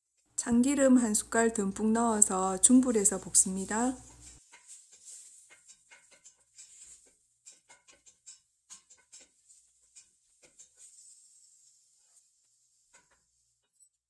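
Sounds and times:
beef sizzling in a pot: 0.0 - 13.7
utensil clicking and scraping: 2.9 - 11.2.

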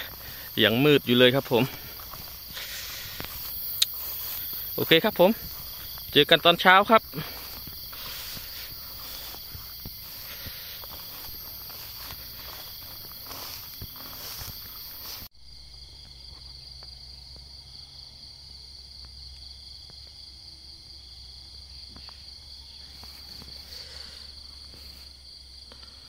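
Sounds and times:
rustling footsteps: 0.0 - 15.3
insect chorus drone: 0.0 - 26.0.

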